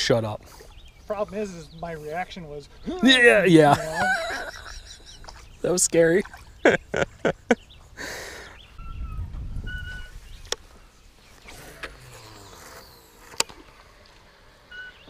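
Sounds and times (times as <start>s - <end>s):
river ambience: 0.0s - 9.0s, 9.6s - 15.0s
whistled bird calls: 7.5s - 11.6s, 14.7s - 15.0s.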